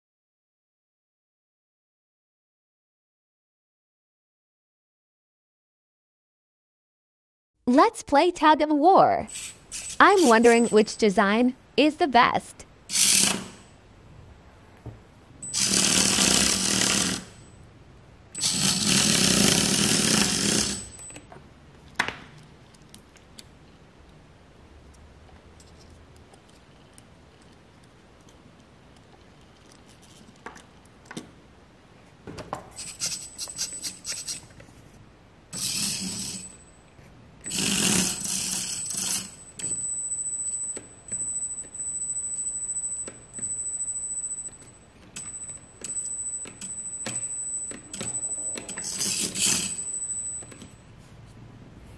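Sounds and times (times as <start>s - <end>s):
tiny electric motors whirring: 9.3s - 10.8s, 12.9s - 13.6s, 15.5s - 17.4s, 18.4s - 20.9s, 37.4s - 39.4s
thin high whine: 35.6s - 51.1s.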